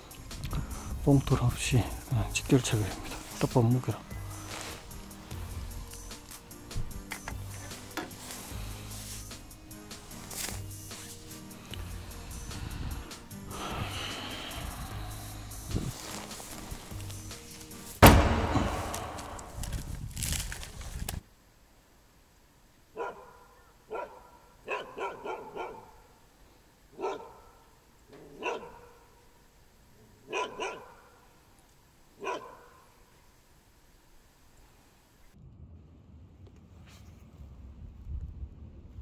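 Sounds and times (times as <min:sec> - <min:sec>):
loud rushing noise: 0:18.0 - 0:19.9
dog barking: 0:22.9 - 0:26.1, 0:26.9 - 0:29.2, 0:30.2 - 0:31.3, 0:32.2 - 0:32.9.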